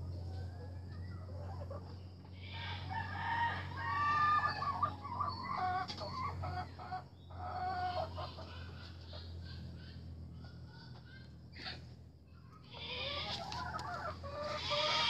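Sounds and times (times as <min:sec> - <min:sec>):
rooster crowing: 0:02.4 - 0:05.1, 0:14.3 - 0:15.0.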